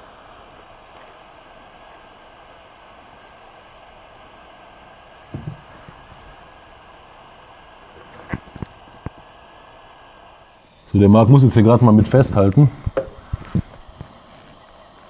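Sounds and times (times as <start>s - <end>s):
gas soldering iron hissing: 0.0s - 15.0s
low handling knocks: 5.3s - 6.4s.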